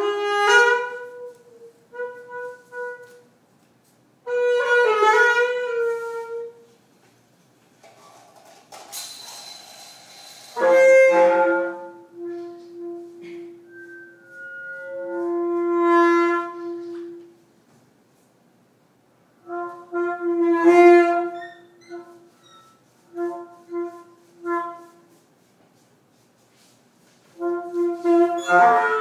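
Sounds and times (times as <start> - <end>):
saxophone improvising: 0.0 - 3.3, 9.3 - 17.4, 19.4 - 25.2, 27.4 - 29.0.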